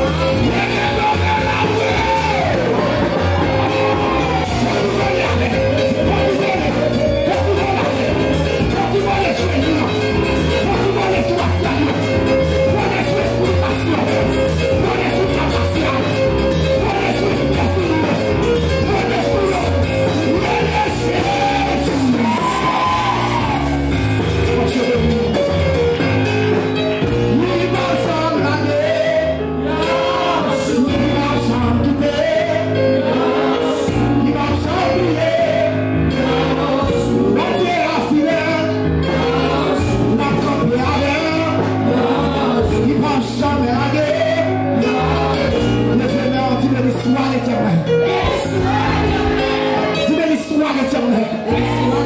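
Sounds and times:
voices singing: 0.0 - 25.5, 27.3 - 52.0
worship music with bass line: 0.0 - 52.0
congregation shouting: 0.4 - 5.5, 20.4 - 24.2, 47.9 - 50.5, 51.2 - 52.0.

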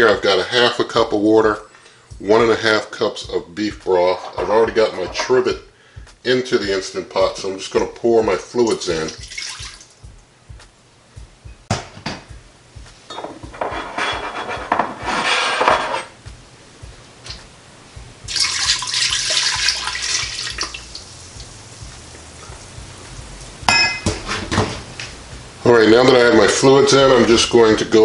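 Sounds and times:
liquid pouring into a pot: 8.7 - 9.9, 18.3 - 21.5.

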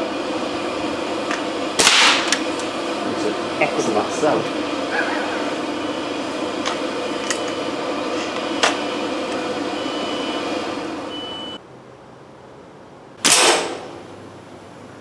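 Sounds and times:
steady background noise: 0.0 - 15.0
air rifle shot: 1.8 - 2.4, 13.2 - 14.0.

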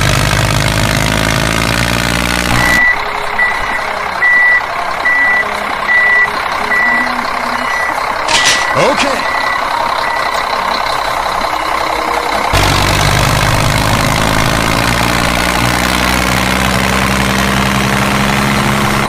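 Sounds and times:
tractor engine idling: 2.6 - 17.7.

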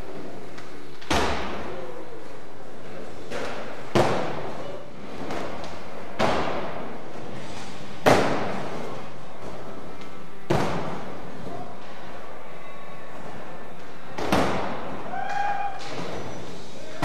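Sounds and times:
skateboard wheels rolling: 0.0 - 17.0
skateboard slapping and landing: 14.2 - 14.8.

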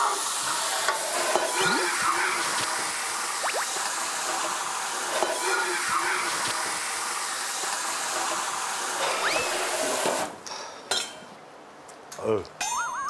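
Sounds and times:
dishes clinking: 10.9 - 11.3.

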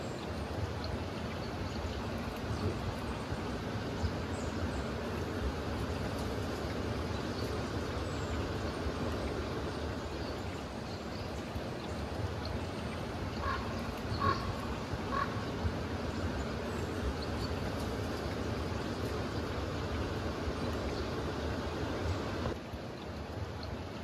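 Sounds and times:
outdoor background noise: 0.0 - 24.0.

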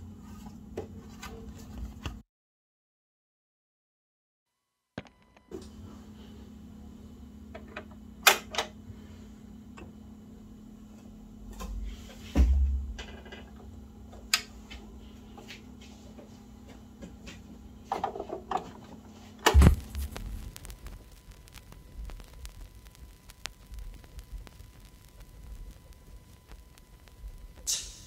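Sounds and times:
turntable motor hum: 19.1 - 28.0
stylus thump on record: 19.5 - 20.7
vinyl groove hiss: 19.5 - 28.0.

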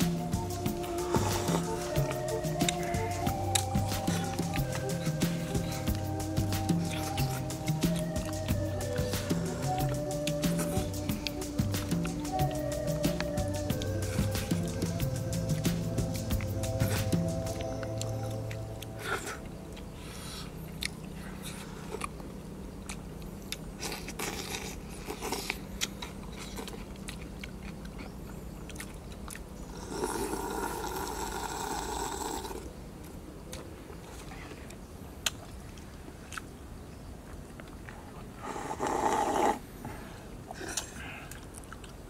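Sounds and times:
chewing with lip smacks: 0.0 - 31.3, 40.5 - 42.0.

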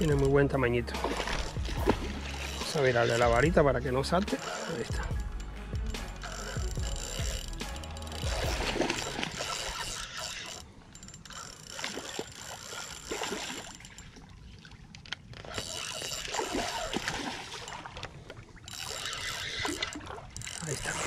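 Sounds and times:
fish splashing at water surface: 1.0 - 3.2, 8.2 - 10.5, 15.9 - 18.1.

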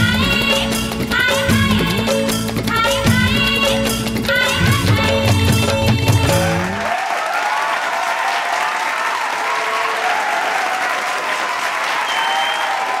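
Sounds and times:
applause: 6.8 - 13.0.

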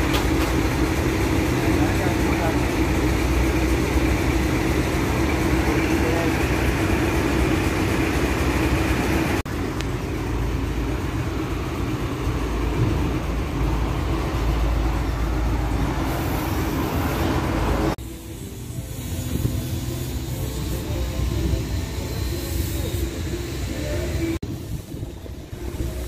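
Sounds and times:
diesel truck engine idling: 0.0 - 26.0.

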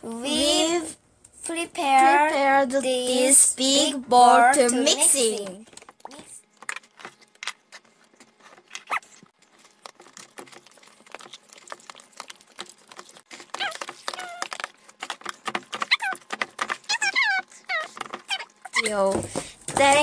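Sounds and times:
squeaky chirps of air squeezing out: 8.8 - 9.2.

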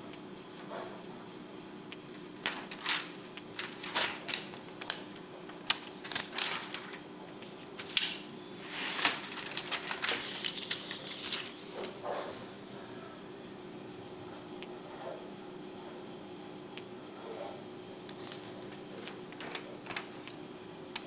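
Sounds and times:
plastic sheets crinkling: 2.1 - 12.1, 18.0 - 20.3
plastic rustling: 2.4 - 12.0, 18.0 - 20.2.

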